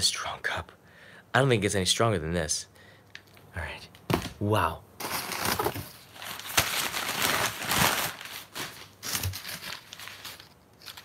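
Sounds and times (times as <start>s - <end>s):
newspaper rustling and crinkling: 5.0s - 11.0s.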